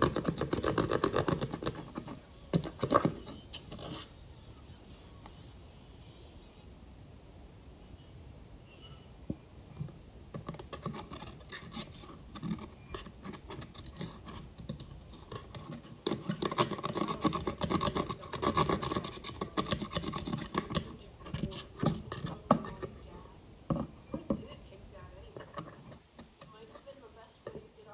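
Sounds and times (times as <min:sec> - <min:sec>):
utensil scratching eyeshadow: 0:00.0 - 0:04.2, 0:10.3 - 0:27.8.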